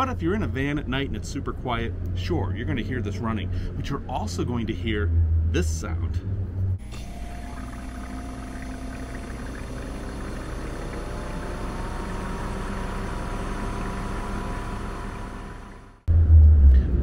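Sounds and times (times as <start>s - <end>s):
fridge compressor hum: 6.8s - 16.1s.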